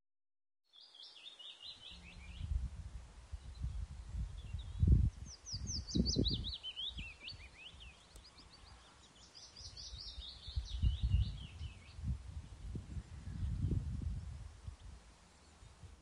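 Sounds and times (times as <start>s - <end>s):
songbird chirping: 0.7s - 16.0s
low gusty rumble: 1.9s - 7.1s, 10.0s - 16.0s.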